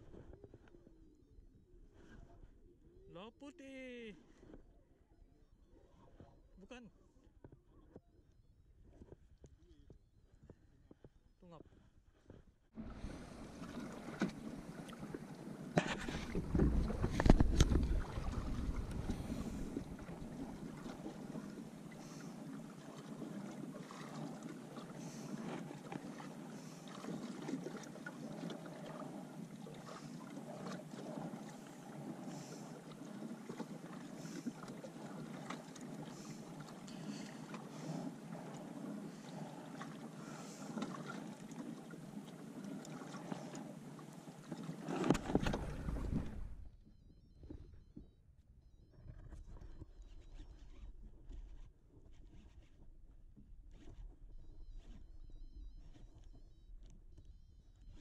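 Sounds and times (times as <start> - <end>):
water lapping against kayak hull: 0.0 - 1.1, 10.3 - 48.1, 49.0 - 58.0
small knocks and creaks: 15.8 - 19.2, 44.8 - 46.4.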